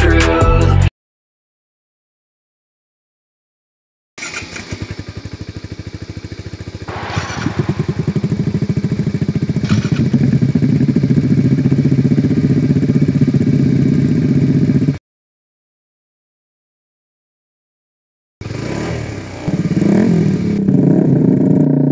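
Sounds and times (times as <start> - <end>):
motorcycle engines starting: 4.2 - 13.2, 18.4 - 21.8
motorcycle engines idling: 4.2 - 15.0, 18.4 - 21.9.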